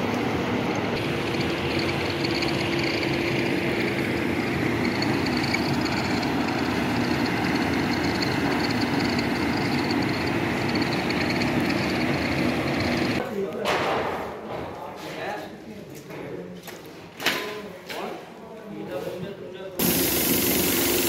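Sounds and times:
heavy machinery drone: 0.0 - 13.2.

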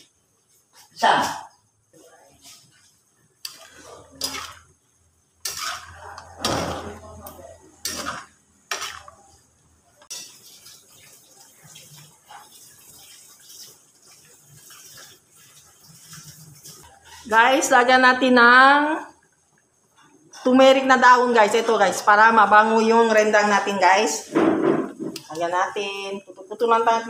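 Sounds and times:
steady cooking hiss: 0.0 - 27.0
metal spatula scraping steel pan: 3.5 - 4.7, 5.4 - 7.1, 7.8 - 9.2, 10.0 - 10.4.

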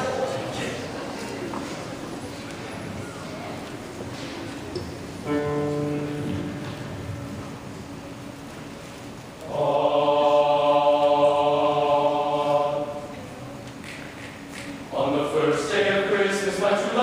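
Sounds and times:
men's choir holding a chord: 9.4 - 13.3, 14.8 - 17.0.

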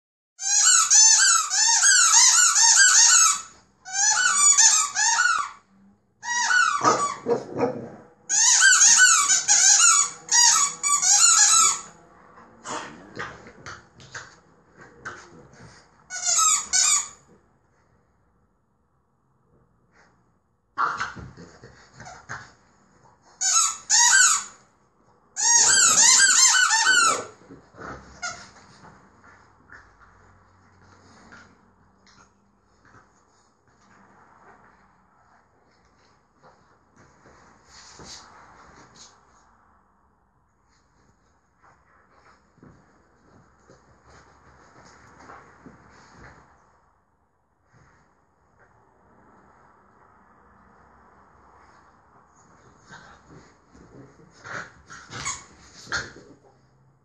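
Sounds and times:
rubber squeaky toy squeaking: 0.4 - 5.6, 6.2 - 11.9, 16.1 - 17.2, 23.4 - 24.6, 25.4 - 27.4, 28.1 - 28.6, 54.9 - 56.1
low rough noise: 9.2 - 23.2, 26.9 - 57.0.

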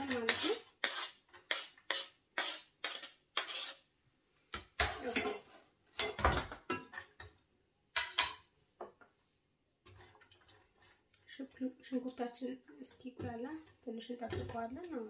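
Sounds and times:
knife scraping cutting board: 0.0 - 3.9.

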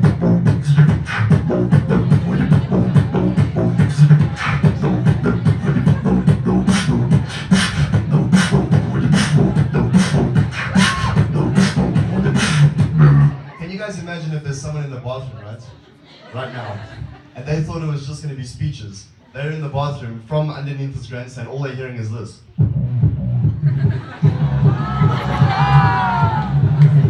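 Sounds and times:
low bass hum: 0.0 - 13.4, 22.6 - 27.0
amplified beatboxing: 0.0 - 13.5, 22.5 - 27.0.

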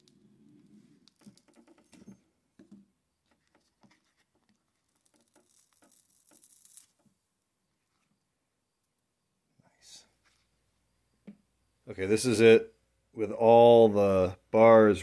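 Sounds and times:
small clicks and taps: 1.0 - 6.5.

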